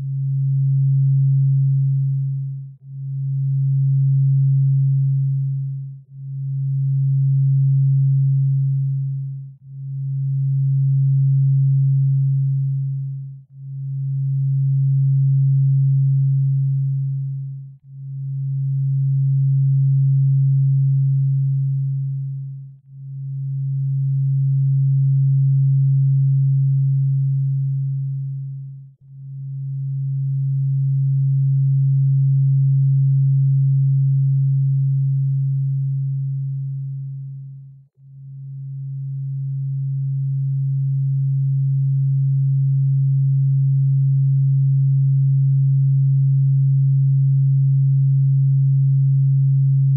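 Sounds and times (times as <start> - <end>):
low electronic sine tone: 0.0 - 49.9.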